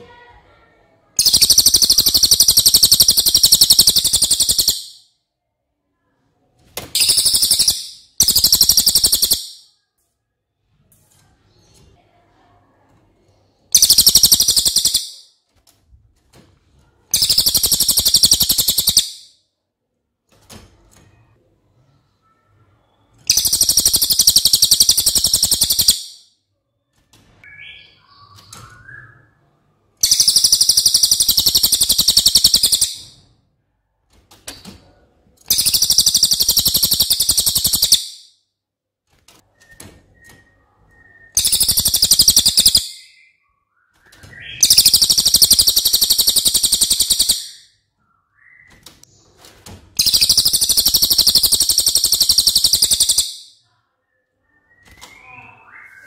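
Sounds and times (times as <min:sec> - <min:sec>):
bird singing rapid high notes: 0:01.2 - 0:05.0, 0:07.0 - 0:09.6, 0:13.7 - 0:15.3, 0:17.1 - 0:19.3, 0:22.8 - 0:26.2, 0:30.0 - 0:33.2, 0:35.5 - 0:38.3, 0:41.0 - 0:48.8, 0:50.0 - 0:53.6.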